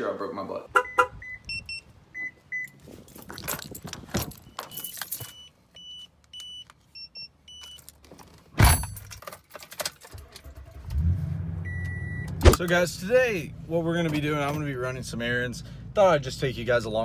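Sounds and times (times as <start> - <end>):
keys and handling clicks: 2.6 - 5.5, 7.5 - 10.4
truck engine starting: 10.1 - 13.0.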